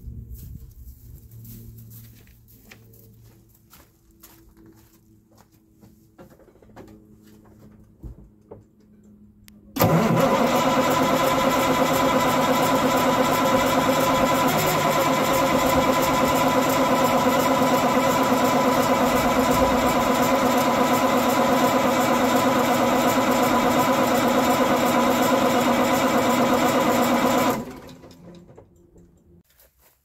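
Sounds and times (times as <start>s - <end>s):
diesel engine starter cranking: 9.8s - 29.4s.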